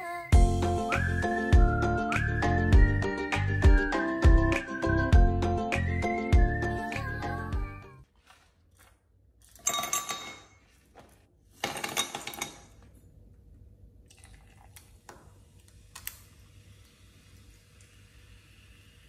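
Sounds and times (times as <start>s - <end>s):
ice clattering into glass: 9.5s - 10.6s
soda fizzing hiss: 14.8s - 19.0s.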